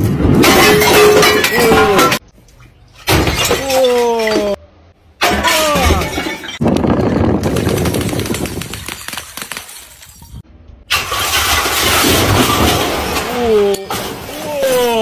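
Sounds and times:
glass breaking: 0:00.4 - 0:02.2, 0:03.0 - 0:04.6, 0:05.2 - 0:06.6, 0:10.9 - 0:15.0.

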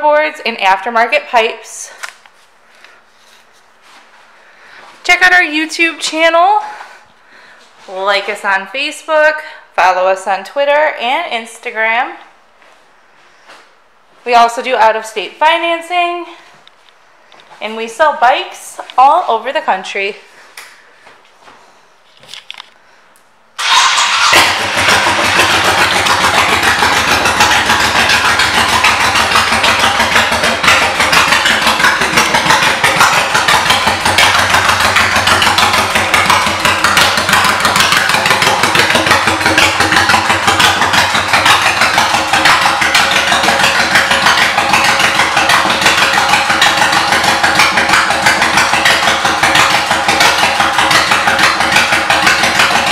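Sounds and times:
motorcycle starting and idling: 0:03.8 - 0:08.6, 0:23.6 - 0:52.9.

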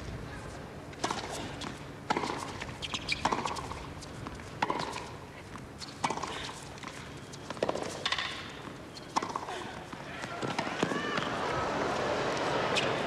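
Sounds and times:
tennis racket hitting ball: 0:04.6 - 0:05.1, 0:07.5 - 0:08.5, 0:09.1 - 0:11.3.

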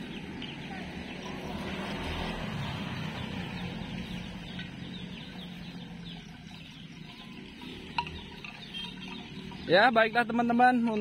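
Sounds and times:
birds chirping: 0:00.0 - 0:11.0
road traffic hum: 0:00.0 - 0:11.0.

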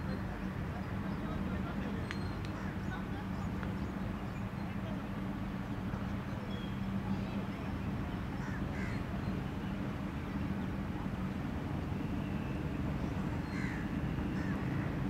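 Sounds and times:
faint bird calls: 0:08.4 - 0:09.1, 0:12.0 - 0:15.0.

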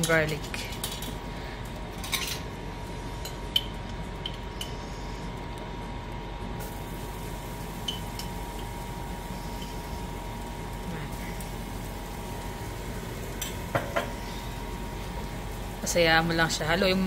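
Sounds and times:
butter sizzling in a pan: 0:06.6 - 0:17.0.

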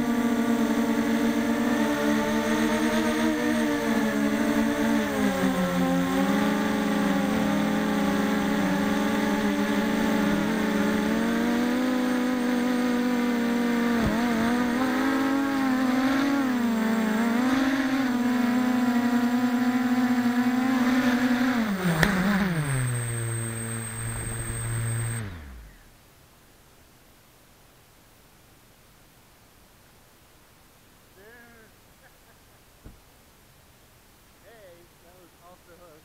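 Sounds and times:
quadcopter motors buzzing whine: 0:00.0 - 0:25.9.

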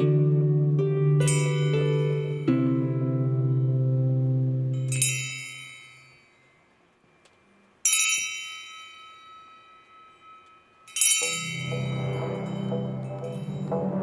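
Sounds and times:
harp chord: 0:00.0 - 0:05.0, 0:11.2 - 0:14.0
hand-held chime ringing: 0:01.2 - 0:02.5, 0:04.7 - 0:06.7, 0:07.8 - 0:14.0.

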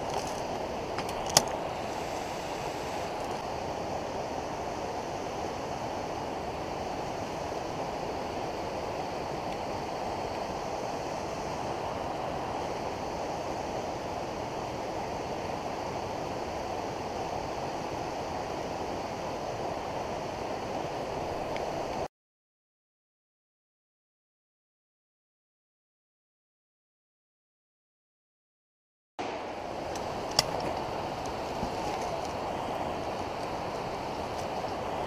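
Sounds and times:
steady rushing noise: 0:00.0 - 0:22.1, 0:29.2 - 0:35.0.

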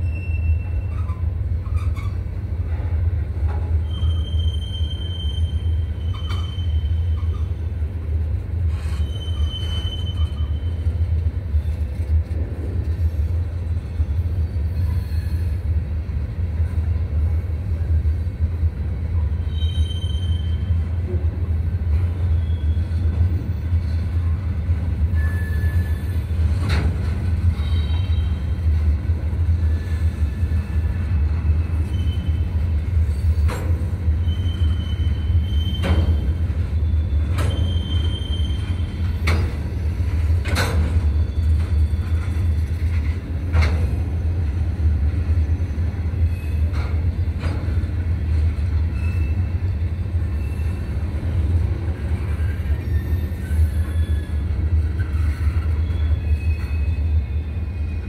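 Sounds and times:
high wheel squeals: 0:00.0 - 0:02.2, 0:03.8 - 0:07.6, 0:08.7 - 0:11.0, 0:19.4 - 0:20.8, 0:25.1 - 0:26.4, 0:29.6 - 0:33.5, 0:34.1 - 0:39.6, 0:48.8 - 0:51.0, 0:52.3 - 0:58.0
train wheels rumbling on rail: 0:00.0 - 0:58.0.

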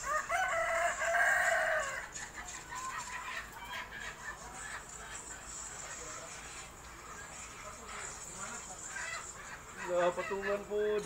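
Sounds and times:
rooster crowing: 0:00.0 - 0:02.2
chicken clucking: 0:00.5 - 0:11.0.

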